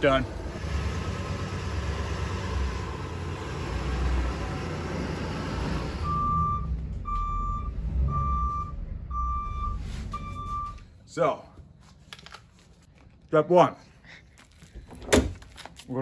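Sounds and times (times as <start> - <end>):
bus engine running: 0.0 - 10.8
reversing alarm beeps: 6.0 - 10.9.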